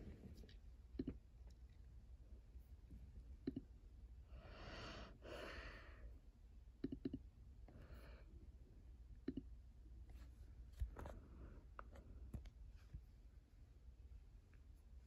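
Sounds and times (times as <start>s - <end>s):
computer mouse clicks: 6.8s - 7.2s.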